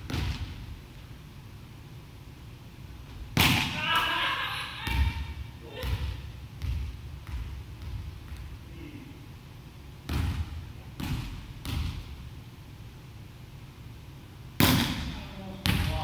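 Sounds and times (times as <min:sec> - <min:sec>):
ball bouncing on wooden floor: 0:05.8 - 0:08.6.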